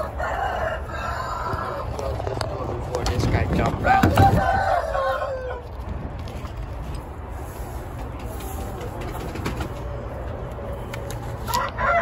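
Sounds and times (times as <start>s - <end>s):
rooster calling: 0.0s - 2.0s, 3.8s - 5.8s, 11.4s - 12.0s
chickens cooing and clucking: 0.0s - 6.6s, 7.3s - 12.0s
steady low rumble: 0.0s - 11.4s.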